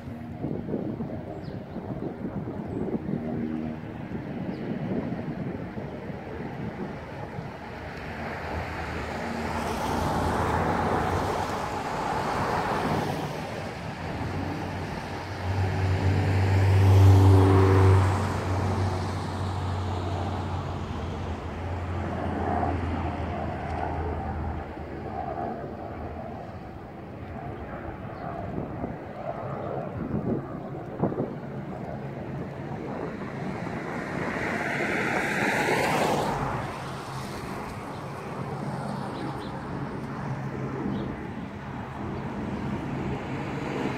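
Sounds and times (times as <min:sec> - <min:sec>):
low engine hum: 0:00.0 - 0:43.9
vehicles passing by: 0:00.0 - 0:43.9.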